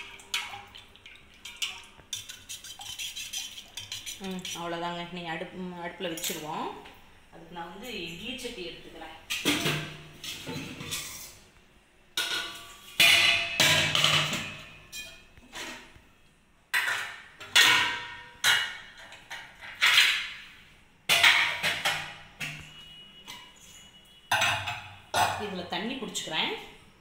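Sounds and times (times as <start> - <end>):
metal pot clanking: 0.0 - 4.7, 12.2 - 16.0, 16.7 - 20.4, 21.1 - 23.5, 24.2 - 25.6.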